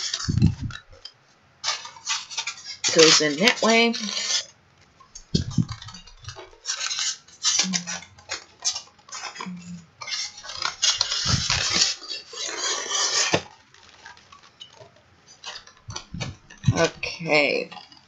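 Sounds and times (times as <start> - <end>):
cardboard scraping and rustling: 5.3 - 7.6, 10.0 - 17.2.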